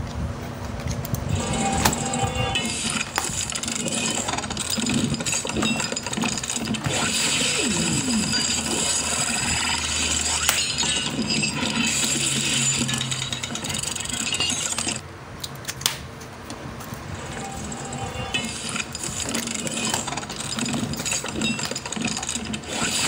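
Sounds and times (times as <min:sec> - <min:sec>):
plastic parts clinking: 0:07.7 - 0:15.0, 0:17.3 - 0:23.0.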